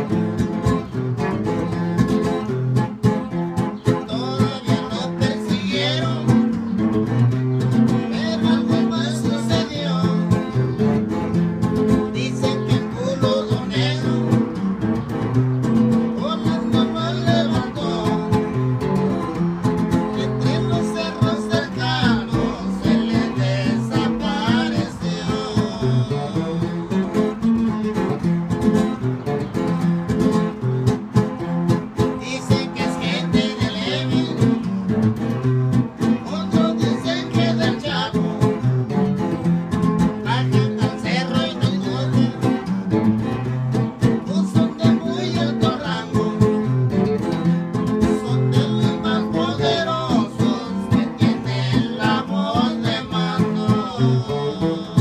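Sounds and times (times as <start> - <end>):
guitar strummed through loudspeaker: 0.0 - 55.0.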